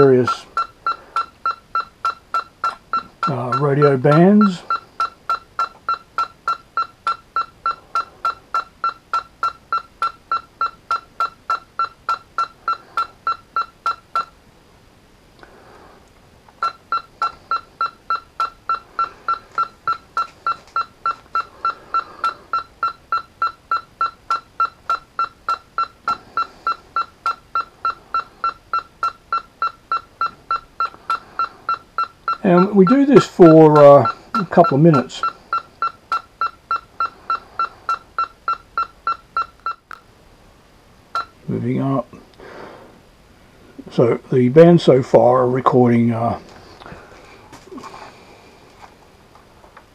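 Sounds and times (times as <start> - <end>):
radio transceiver beeping: 0.0 - 14.3, 16.6 - 40.1, 41.2 - 41.5.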